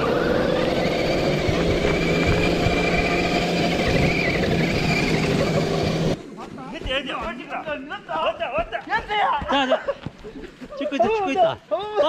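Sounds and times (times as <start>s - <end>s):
electric motor and gearbox whining: 0.0s - 8.7s.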